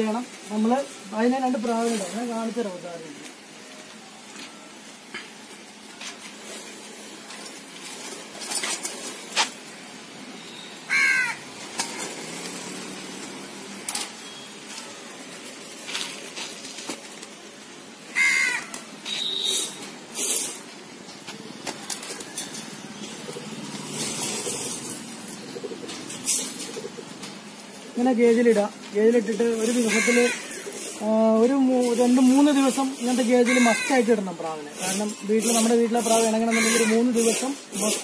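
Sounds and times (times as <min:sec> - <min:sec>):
crow cawing: 0:10.9 - 0:11.4, 0:18.1 - 0:18.8, 0:29.8 - 0:30.7, 0:33.4 - 0:34.0, 0:36.5 - 0:37.0.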